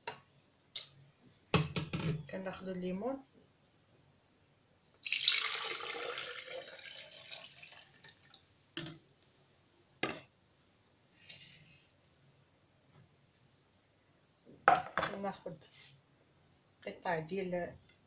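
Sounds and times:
juice pouring into a jar: 5.0s - 8.4s.

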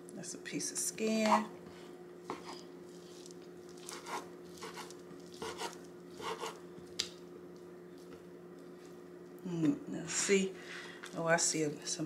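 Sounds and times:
faint steady hum: 0.0s - 12.0s
knife chopping on wooden board: 3.9s - 6.6s.

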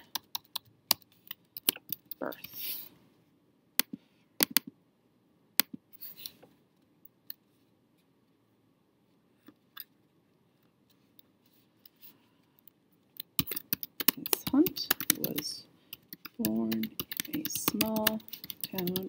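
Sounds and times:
keyboard keystrokes: 13.3s - 19.0s.

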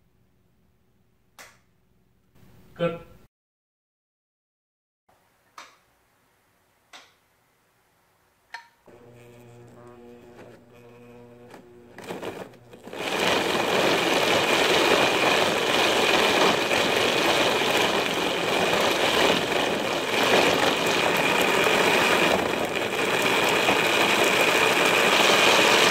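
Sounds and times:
rotary tool whirring: 8.9s - 23.8s.

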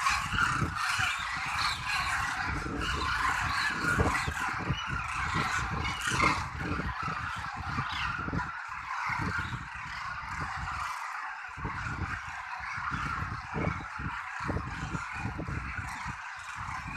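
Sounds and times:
flock of cranes calling: 0.0s - 16.9s.

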